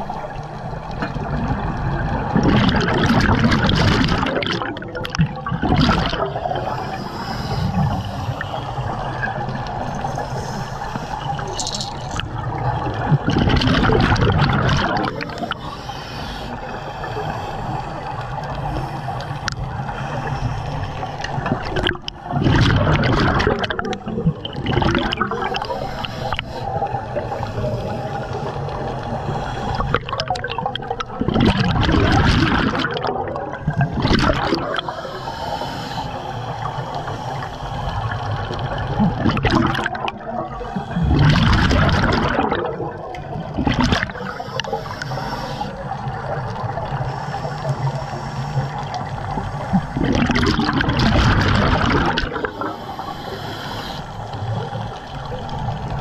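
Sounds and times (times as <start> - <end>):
gurgling exhaled bubbles: 0.0 - 15.9, 16.5 - 56.0
steady water hiss: 0.0 - 56.0
diver breathing through regulator: 6.1 - 12.3, 15.0 - 22.7, 24.8 - 30.4, 33.8 - 42.5, 43.4 - 50.8, 51.9 - 56.0.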